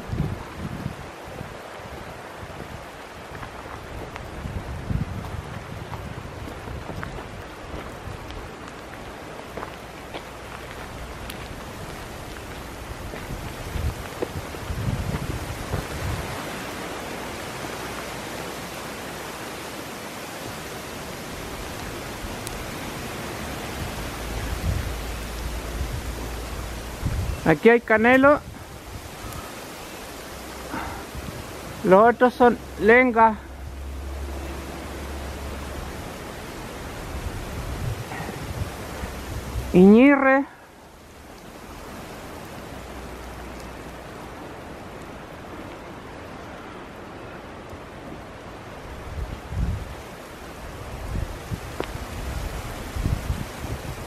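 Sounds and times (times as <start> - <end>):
rain hissing on wet leaves: 0.0 - 54.0
rushing water: 0.0 - 54.0
faint drip ticks: 29.2 - 29.6, 41.2 - 41.6, 51.8 - 52.0.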